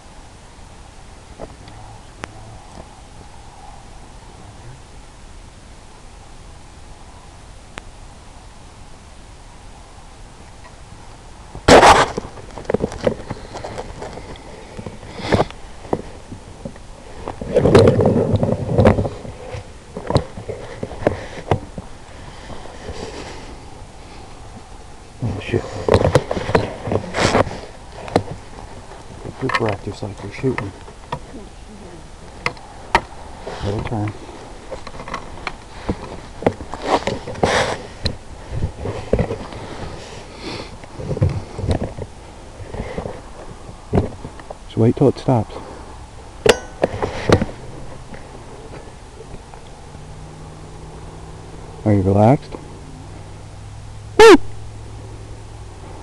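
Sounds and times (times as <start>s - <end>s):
person sniffing and breathing: 13.2s - 15.6s, 20.6s - 24.5s, 36.8s - 41.7s.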